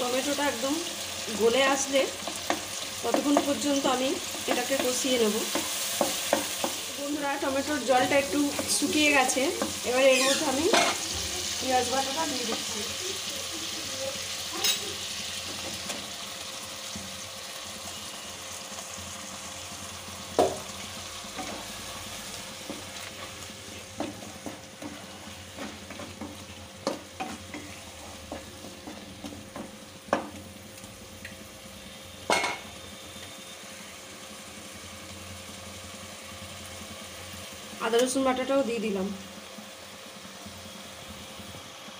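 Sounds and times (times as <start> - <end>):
paste sizzling in hot oil: 0.0 - 41.9
spatula knocking against pan: 4.5 - 6.8.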